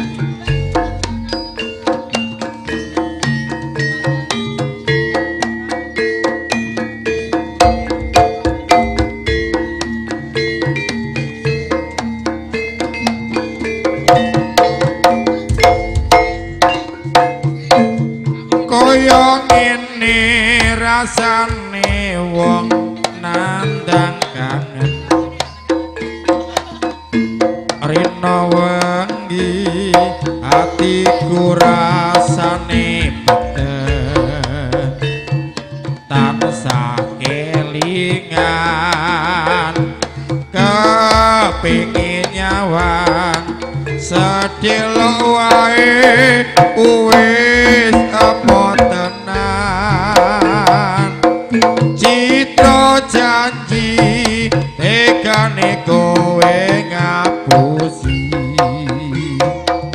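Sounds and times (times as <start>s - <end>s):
gamelan music: 0.0s - 59.9s
hand drums: 0.0s - 59.9s
high wavering melodic line: 0.0s - 59.9s
person singing: 16.8s - 25.6s, 27.8s - 59.9s.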